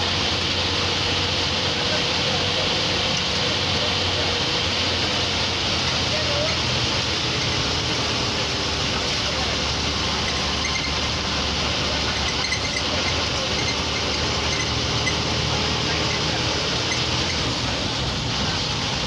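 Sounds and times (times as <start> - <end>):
bus engine hum: 0.0 - 19.0
road noise: 0.0 - 19.0.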